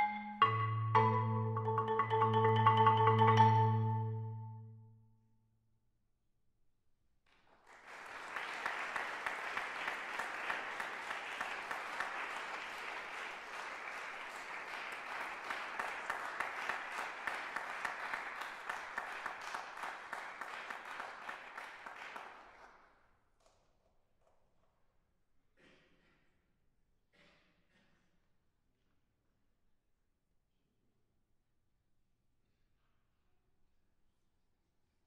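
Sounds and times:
audience applauding: 7.5 - 22.8.

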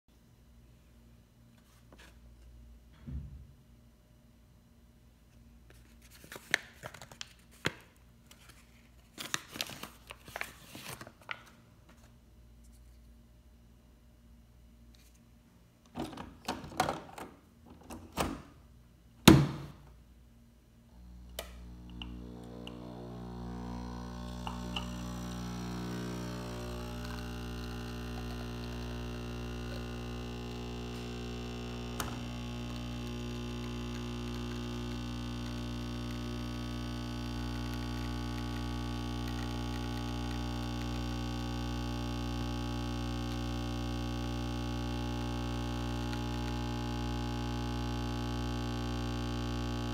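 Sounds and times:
coffee machine pump humming: 20.9 - 49.9.

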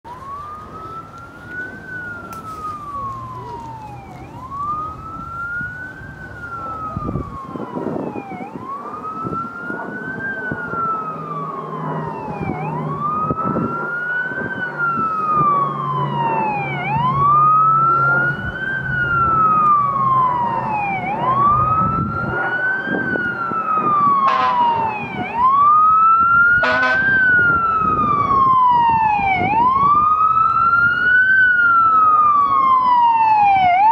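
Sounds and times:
fire engine siren wailing: 0.0 - 33.9
short siren blasts: 0.1 - 33.9.

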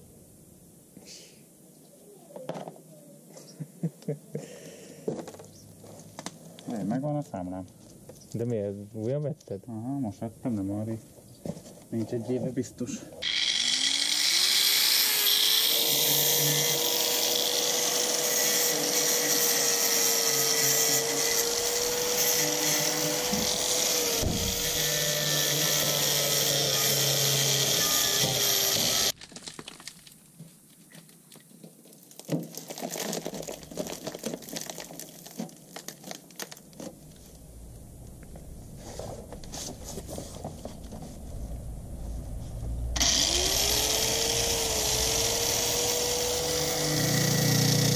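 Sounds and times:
power drill whining on sheet metal: 13.2 - 29.1, 42.9 - 47.9
scattered crackles and clicks: 29.1 - 37.4.

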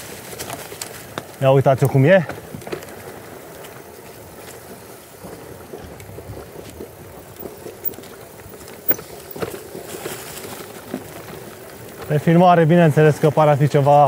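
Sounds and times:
bike tyre and wind noise: 0.0 - 14.0
bike knocking over bumps: 5.2 - 12.4.

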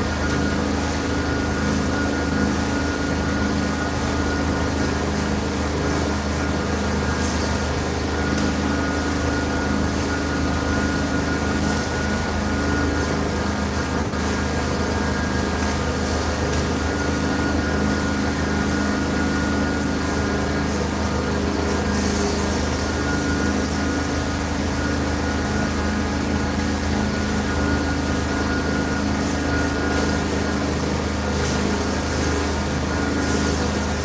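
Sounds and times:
high-pitched whine: 0.0 - 34.0
machine humming: 0.0 - 34.0.

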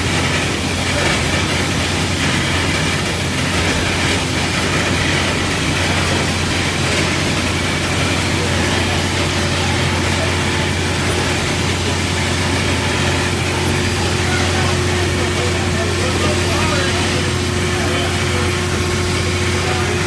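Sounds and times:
steam engine running: 0.0 - 20.0.

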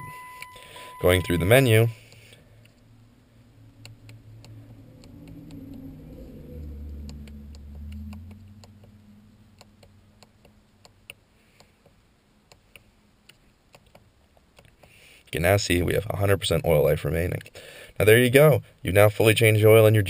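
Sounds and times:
low rumble: 2.4 - 10.3.

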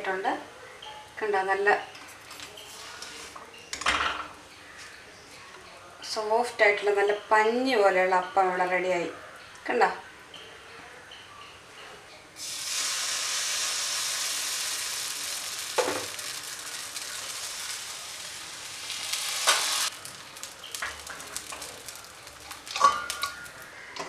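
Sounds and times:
batter sizzling in hot pan: 12.4 - 23.9.

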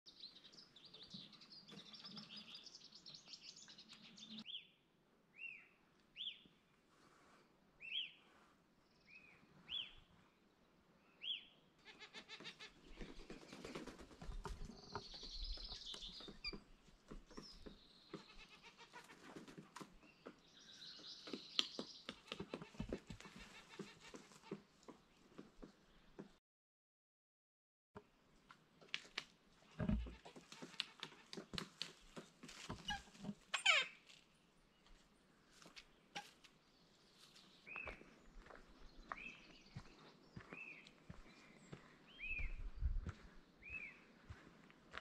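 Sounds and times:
birds chirping and twittering: 0.1 - 4.7, 11.0 - 24.9, 29.7 - 34.0, 34.7 - 44.5.

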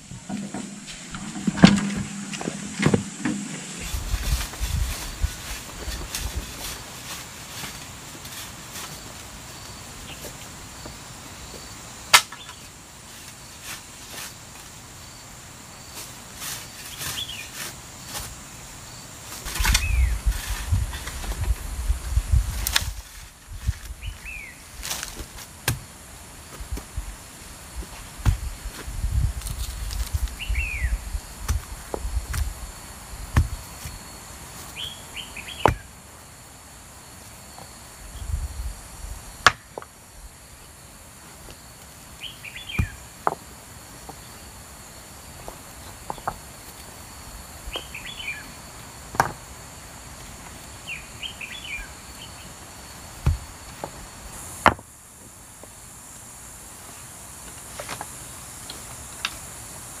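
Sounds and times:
high insect drone: 0.0 - 60.0.

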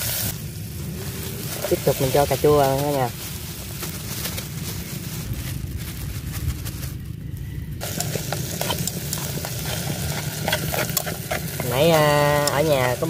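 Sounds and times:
tomatoes sizzling in hot oil: 0.0 - 6.1, 7.8 - 13.0
wooden stick stirring in pot: 7.8 - 13.0.

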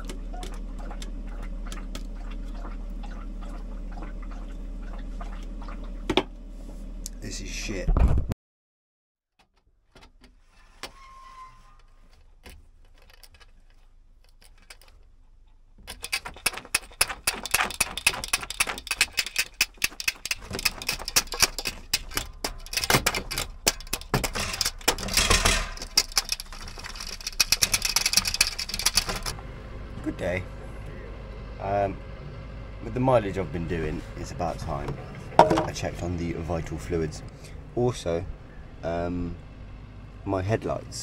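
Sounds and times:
clicking and rattling of window cover: 11.8 - 15.1, 15.8 - 29.4.

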